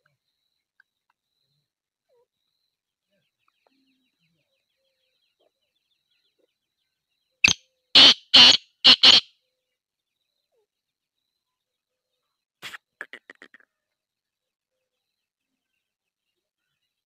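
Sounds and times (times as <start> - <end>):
francolin calling: 7.4 - 9.2.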